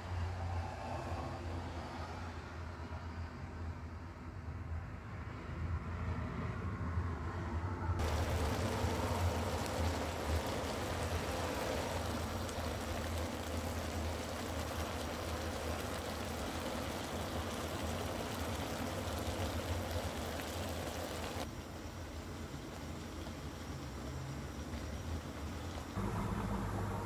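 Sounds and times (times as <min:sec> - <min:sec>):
steady rushing noise: 0:08.0 - 0:21.5
low hum: 0:26.0 - 0:27.0.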